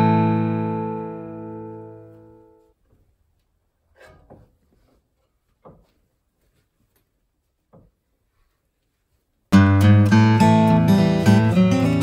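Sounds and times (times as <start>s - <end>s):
acoustic guitar chord: 0.0s - 2.7s.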